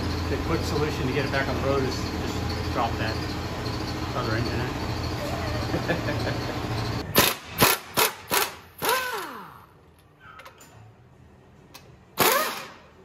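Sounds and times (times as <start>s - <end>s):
cordless impact wrench bursts: 7.1s - 9.7s, 12.2s - 13.0s.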